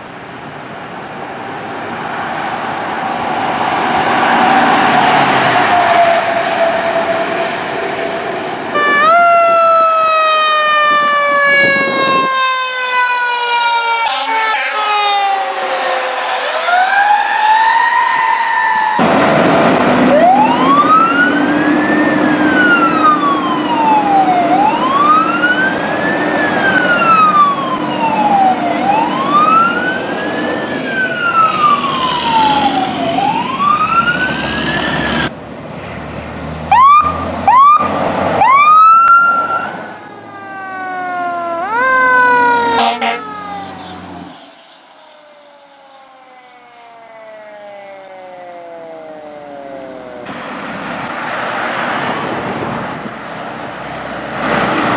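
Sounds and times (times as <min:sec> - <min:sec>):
truck engine drone: 0:00.0 - 0:54.9
siren wailing: 0:02.9 - 0:35.3, 0:36.7 - 0:50.3
siren yelps: 0:04.2 - 0:19.1, 0:19.9 - 0:35.3, 0:36.7 - 0:50.3
horn blasts: 0:14.0 - 0:16.3, 0:42.7 - 0:43.5.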